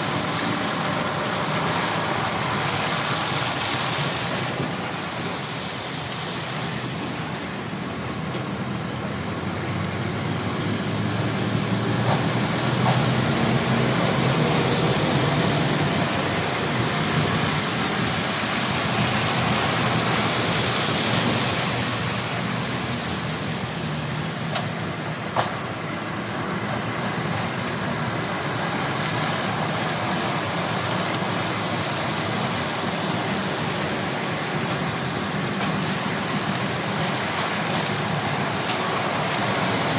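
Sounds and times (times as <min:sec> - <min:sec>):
lorry engines running: 0:00.0 - 0:39.9
tyres on wet tarmac: 0:00.0 - 0:39.9.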